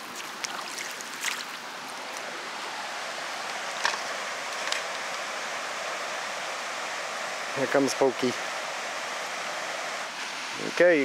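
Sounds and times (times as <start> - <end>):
rushing creek and waterfalls: 0.0 - 11.0.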